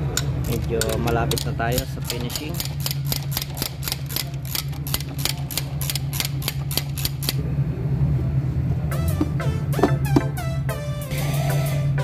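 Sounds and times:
steady low hum: 0.0 - 12.0
ratchet wrench clicking: 0.1 - 7.4.

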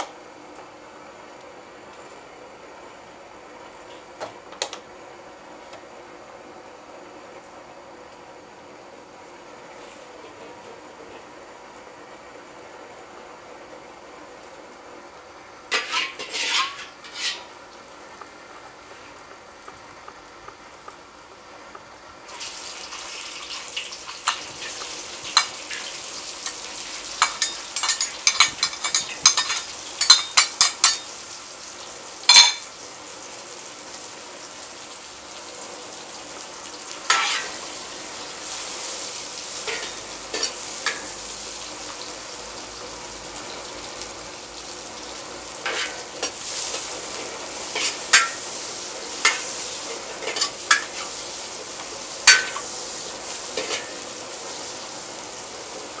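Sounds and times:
vegetables sizzling in oil: 11.3 - 56.0
metal spatula scraping wok: 15.7 - 17.5, 37.1 - 37.6, 45.6 - 46.9, 47.7 - 48.4.

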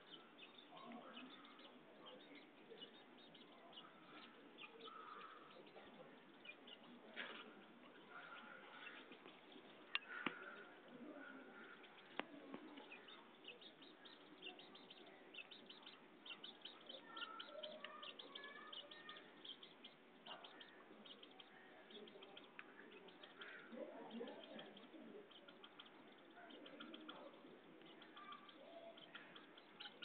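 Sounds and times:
faint bird chirping: 0.0 - 30.0.

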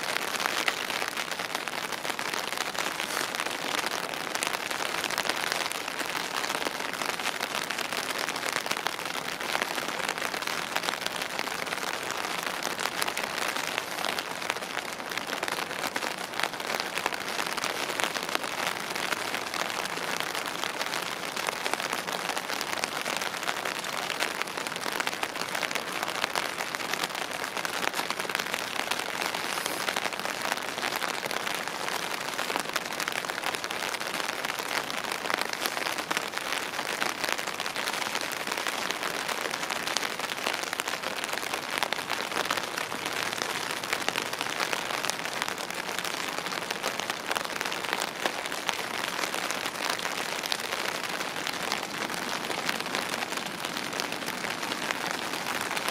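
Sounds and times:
steady rain: 0.0 - 55.9.

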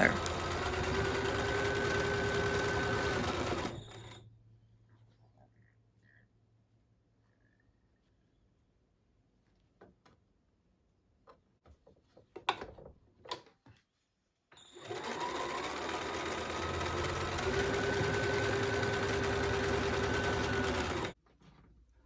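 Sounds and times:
sewing machine running: 0.0 - 4.2, 14.6 - 21.2.

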